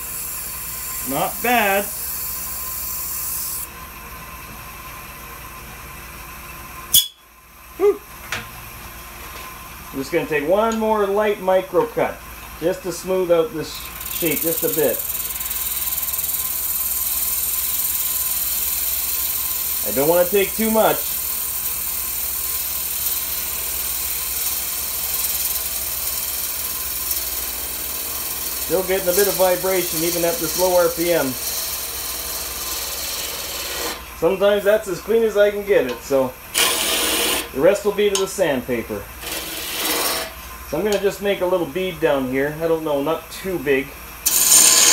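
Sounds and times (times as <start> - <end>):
wood lathe motor hum: 0.0 - 3.7, 13.7 - 34.6, 36.5 - 38.2, 39.2 - 41.0, 44.2 - 44.9
turning tool hissing on wood: 13.7 - 33.9
fingers rubbing on spinning wood: 13.8 - 16.8, 28.5 - 33.8.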